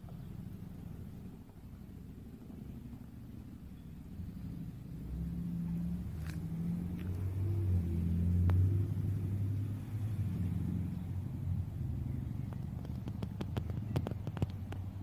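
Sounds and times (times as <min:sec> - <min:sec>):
distant helicopter rumble: 0:00.0 - 0:15.0
faint clicks: 0:12.4 - 0:15.0.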